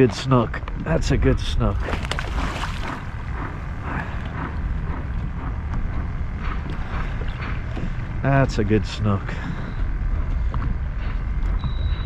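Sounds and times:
wind noise on microphone: 0.0s - 12.0s
fish splashing in water: 1.8s - 3.2s.

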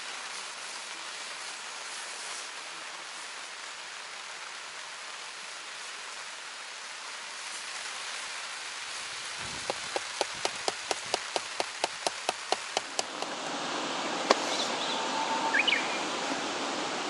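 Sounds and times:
rain falling: 0.0s - 17.0s
sharp ticks: 9.6s - 13.3s.

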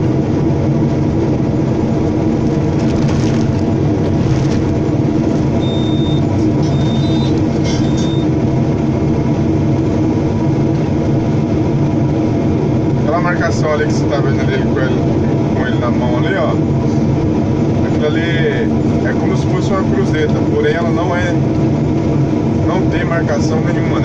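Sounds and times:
excavator diesel engine running: 0.0s - 24.0s
short high-pitched tones: 5.6s - 8.3s.

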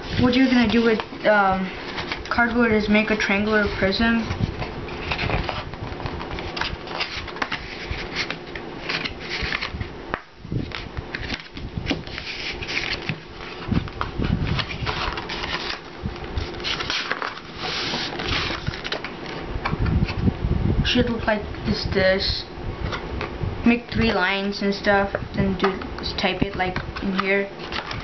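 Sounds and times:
thin card rustling and scraping: 0.0s - 1.2s, 1.8s - 19.4s, 26.6s - 28.0s.

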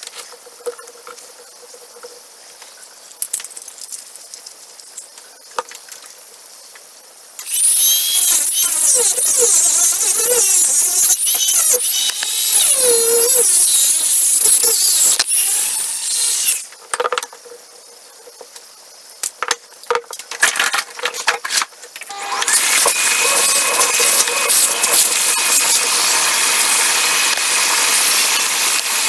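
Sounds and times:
rotary tool whining: 7.4s - 16.7s, 21.5s - 29.0s.

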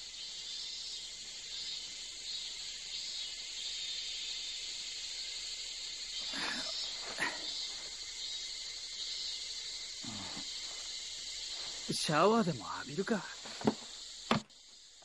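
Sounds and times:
cicadas chirring: 0.0s - 15.0s.

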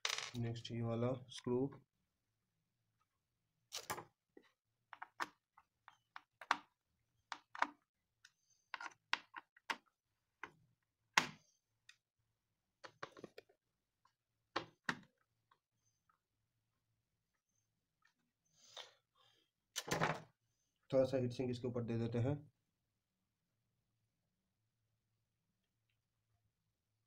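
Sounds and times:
screws and plastic parts clicking: 7.3s - 10.6s.

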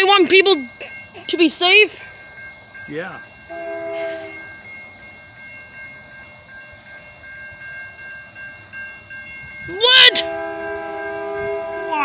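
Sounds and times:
grade-crossing bell ringing: 0.0s - 12.0s
locomotive horn chord: 3.5s - 4.6s, 10.0s - 12.0s.

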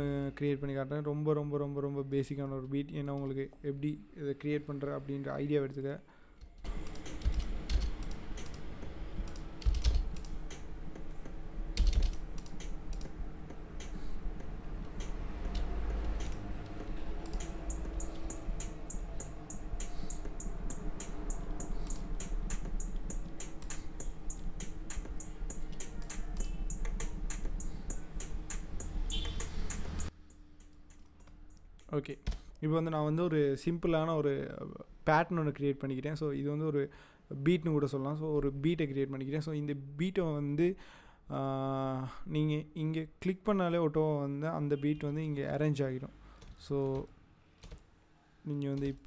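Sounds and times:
mouse and keyboard clicking: 6.4s - 32.5s
steady low hum: 6.6s - 32.3s
faint even ticking: 6.8s - 31.9s.

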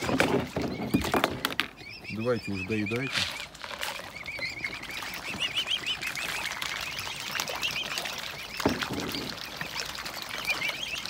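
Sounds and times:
cygnets peeping: 0.0s - 11.0s
light water splashing: 2.9s - 11.0s.

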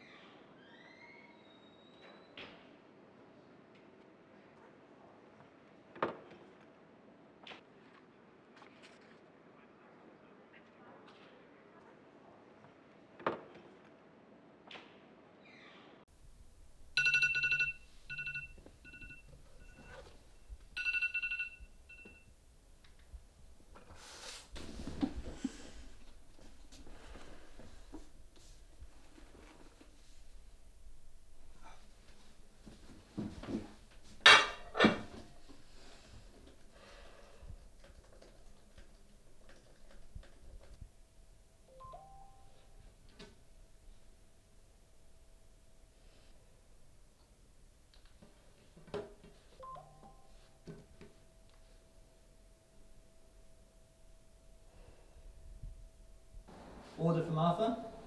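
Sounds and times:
phone ringtone: 17.0s - 22.3s, 41.7s - 42.8s, 49.6s - 50.6s.

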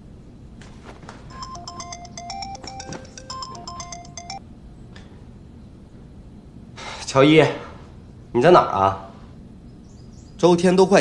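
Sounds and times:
mobile phone ringtone: 1.3s - 4.4s.

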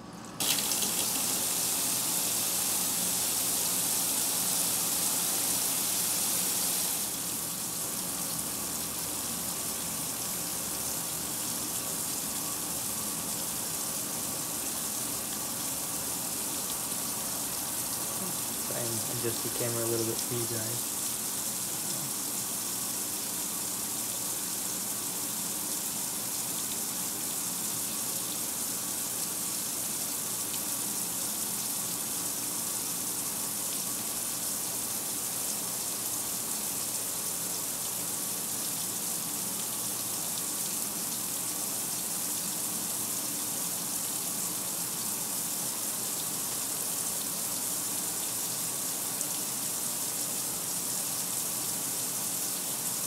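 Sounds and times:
water pouring into washer tub: 0.4s - 30.9s.

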